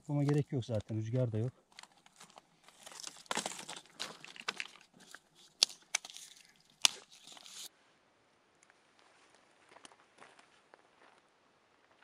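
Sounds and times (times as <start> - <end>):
twigs crunching and crackling: 0.0 - 7.7
sticks snapping: 1.7 - 7.7.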